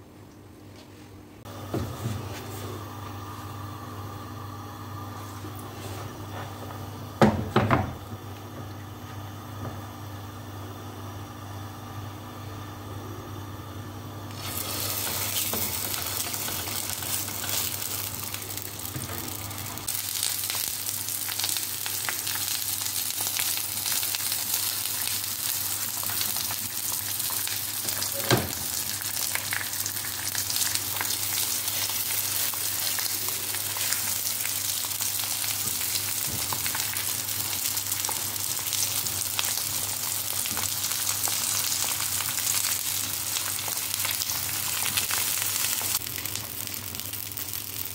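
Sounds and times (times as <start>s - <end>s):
dough frying in hot oil: 14.2s - 47.9s.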